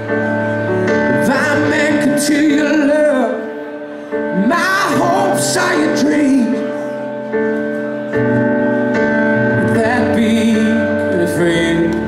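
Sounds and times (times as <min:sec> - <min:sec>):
live band playing slow ballad: 0:00.0 - 0:12.0
man singing with vibrato: 0:01.0 - 0:07.0, 0:09.5 - 0:12.0.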